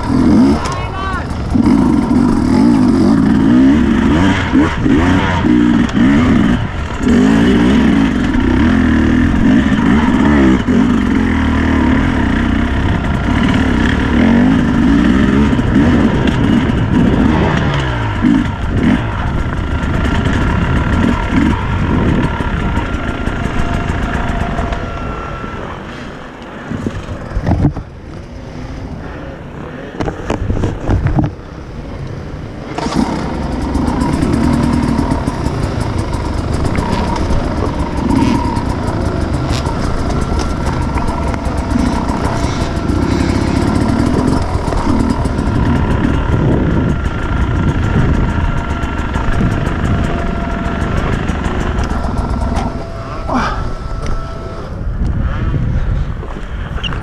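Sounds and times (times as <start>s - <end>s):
dirt bikes revving: 0.0s - 57.0s
engine knocks: 32.8s - 54.5s.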